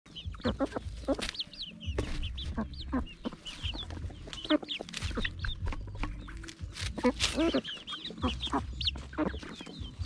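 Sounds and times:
beaks tapping ground: 0:00.1 - 0:10.0
chicks peeping and chirping: 0:00.1 - 0:10.0
leaf rustle: 0:06.4 - 0:08.1.

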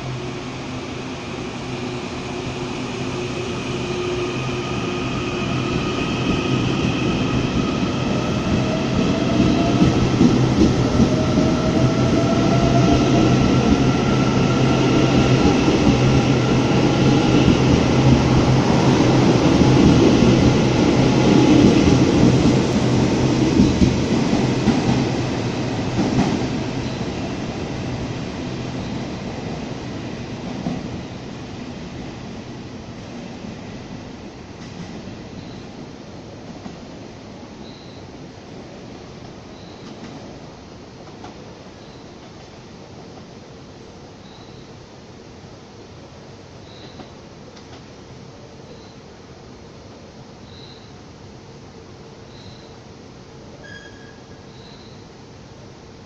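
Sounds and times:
train wheels rumbling: 0:00.0 - 0:37.4.

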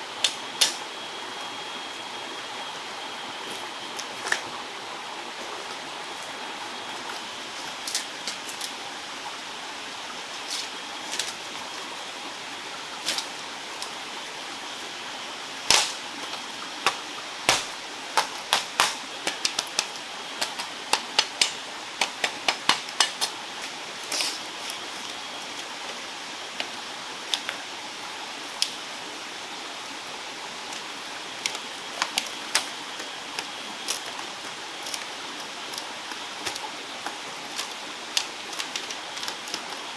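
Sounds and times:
forest stream rushing: 0:00.0 - 0:39.9
bamboo slats clacking: 0:00.2 - 0:00.8, 0:15.7 - 0:23.4, 0:31.4 - 0:39.9.

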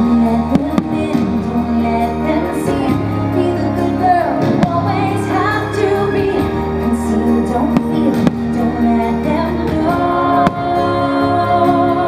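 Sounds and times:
orchestral music: 0:00.0 - 0:12.0
woman singing: 0:00.0 - 0:12.0.

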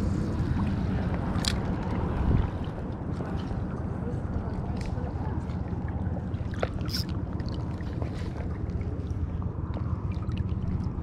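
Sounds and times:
low wind rumble: 0:00.0 - 0:11.0
water lapping and sloshing: 0:00.0 - 0:11.0
small ticks and splashes: 0:04.6 - 0:11.0.

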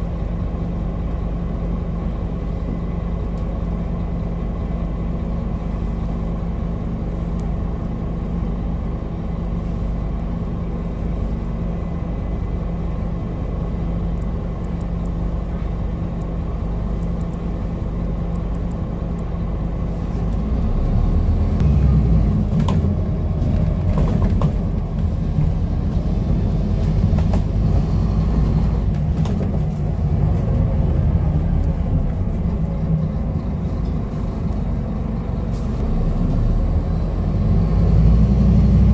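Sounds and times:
bus diesel engine: 0:00.0 - 0:38.9
bus body rattling: 0:22.1 - 0:35.8.

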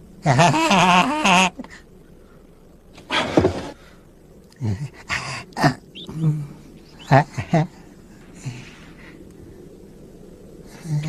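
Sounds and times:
person's wavering trembling call: 0:00.2 - 0:01.8, 0:04.6 - 0:08.5.

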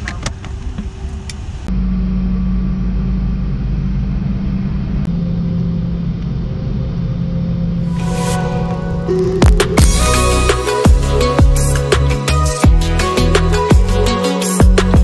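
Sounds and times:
jet engines rumbling in cabin: 0:00.0 - 0:10.0.

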